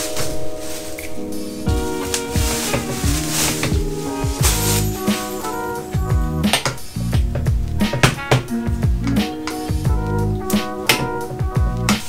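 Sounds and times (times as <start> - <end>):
sustained pitched notes: 1.6 - 7.8
drum hits: 1.7 - 10.0.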